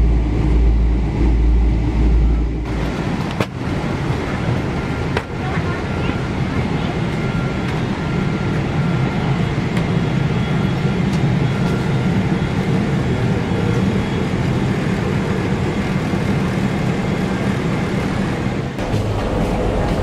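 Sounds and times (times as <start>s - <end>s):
air conditioning drone: 18.8s - 20.0s.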